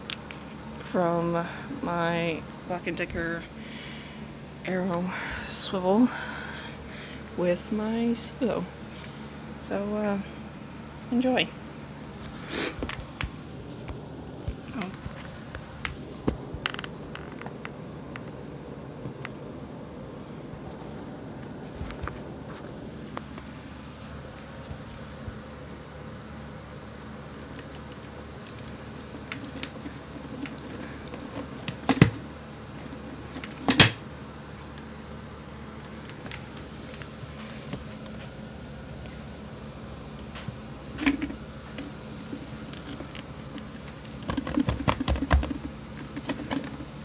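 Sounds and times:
steady low hum: 0.0s - 47.0s
handling clicks and knocks: 12.8s - 18.4s, 27.6s - 32.3s, 32.9s - 34.0s, 40.2s - 47.0s.

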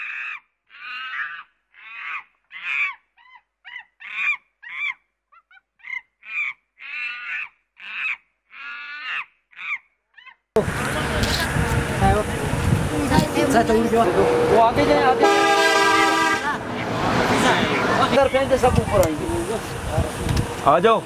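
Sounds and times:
short harsh animal calls: 0.0s - 10.4s.

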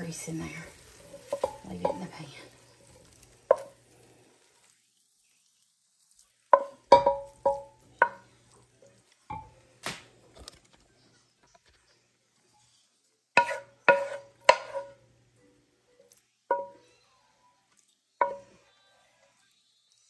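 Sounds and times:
wooden spatula knocking on skillet: 1.1s - 2.3s, 3.1s - 3.9s, 6.5s - 8.3s, 9.3s - 9.6s, 13.4s - 15.0s, 16.5s - 16.8s, 18.2s - 18.6s.

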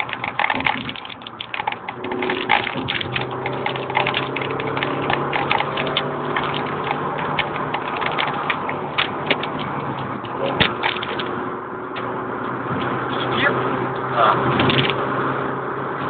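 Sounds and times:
clicks and rattles: 0.0s - 11.4s, 14.5s - 15.0s
car engine running hard: 0.0s - 16.0s.

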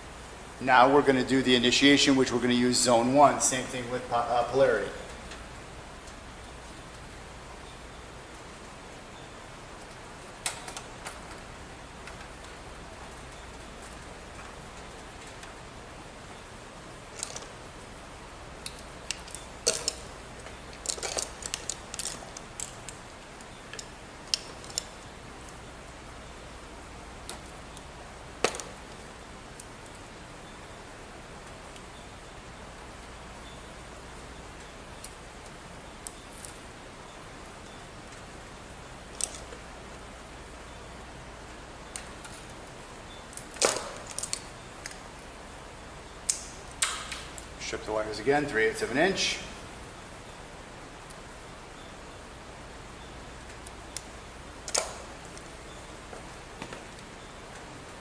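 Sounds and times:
steady hiss: 0.0s - 58.0s
wire handling clicks and scratches: 9.8s - 15.6s, 17.1s - 17.8s, 18.6s - 25.7s, 39.0s - 40.0s, 43.3s - 45.2s
tools clicking and knocking: 18.7s - 20.0s, 20.7s - 22.9s
tools clattering: 19.2s - 20.0s, 20.8s - 22.7s.

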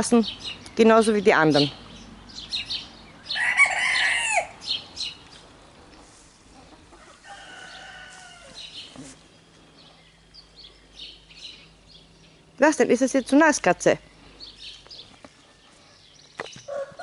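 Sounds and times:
small birds chirping: 0.0s - 17.0s
chicken clucking: 6.0s - 9.0s.

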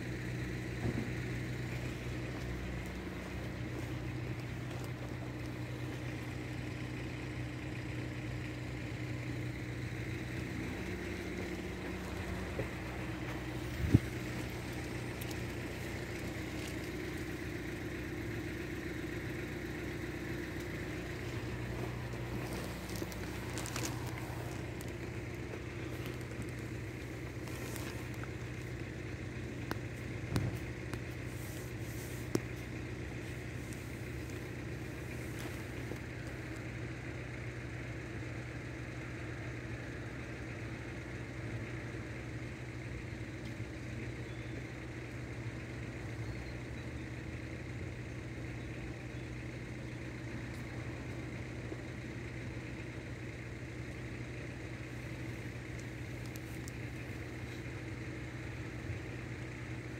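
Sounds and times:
vehicle engine idling: 0.0s - 59.9s.

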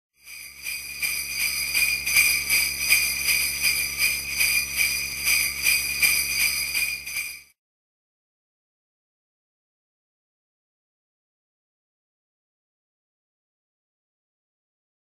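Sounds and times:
sleigh bells shaken: 0.2s - 7.6s.

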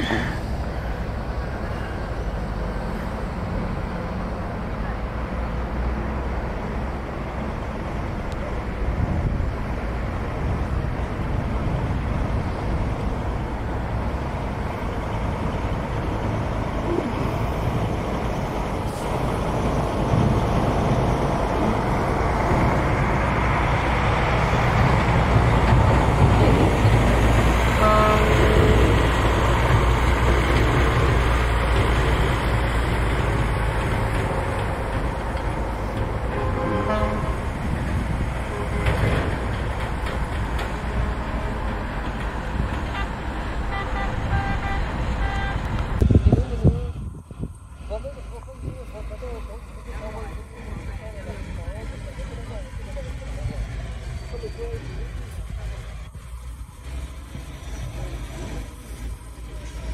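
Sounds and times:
diesel truck engine rumble: 0.0s - 59.9s
short horn toots: 36.4s - 37.4s.

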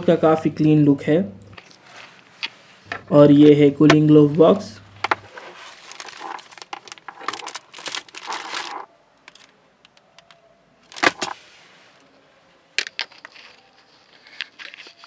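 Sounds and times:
plastic packet crinkling: 5.3s - 9.5s, 10.9s - 11.4s, 12.8s - 15.0s.

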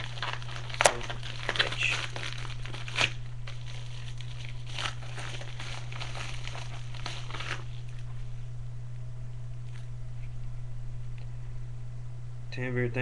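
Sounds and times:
packaging crinkling and rustling: 0.0s - 8.4s
steady low hum: 0.0s - 13.0s.

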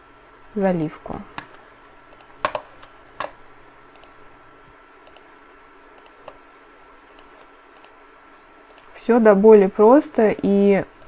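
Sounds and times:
computer mouse clicking: 0.7s - 4.2s, 5.0s - 5.3s, 6.0s - 8.0s, 8.7s - 9.8s.

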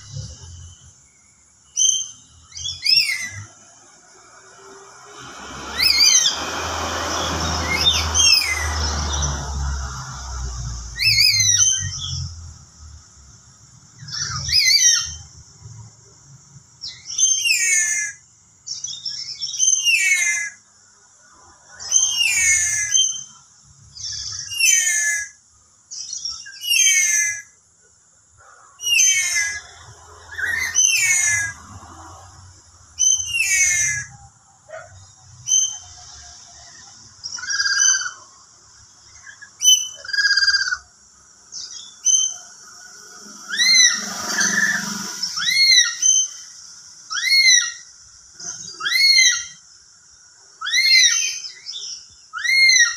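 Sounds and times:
high-pitched hiss: 0.0s - 52.8s
parrot shrill whistled calls: 1.7s - 3.6s, 5.1s - 9.5s, 11.0s - 12.3s, 14.0s - 15.3s, 16.8s - 20.6s, 21.8s - 23.4s, 24.0s - 25.4s, 26.0s - 27.6s, 28.8s - 31.8s, 33.0s - 36.2s, 37.3s - 38.4s, 39.2s - 40.9s, 41.6s - 47.9s, 48.5s - 49.6s, 50.6s - 52.9s.

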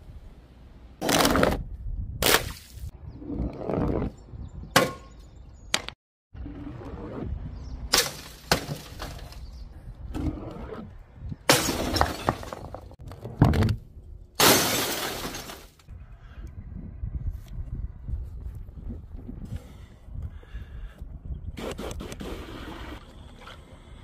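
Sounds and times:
glass shattering: 11.5s - 12.8s, 14.4s - 15.8s.

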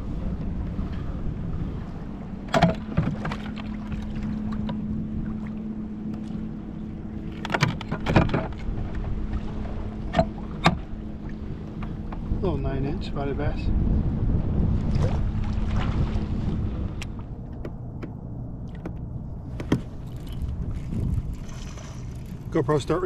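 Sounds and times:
low steady hum: 0.0s - 23.0s
water lapping against kayak: 0.0s - 23.0s
wind: 0.0s - 23.0s.

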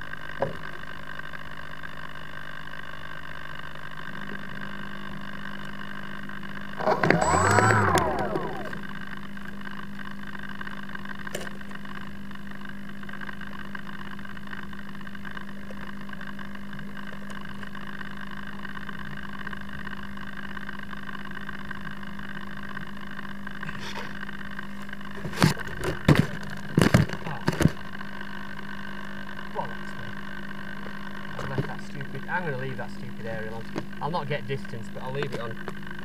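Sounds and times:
steady electrical hum: 6.6s - 9.1s
knocks and rustles of handling: 25.2s - 27.8s.

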